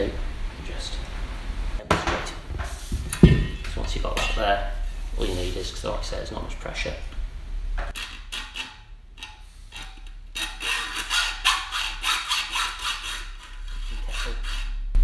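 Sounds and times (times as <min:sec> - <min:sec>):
hacksaw cutting metal: 0:07.9 - 0:14.8.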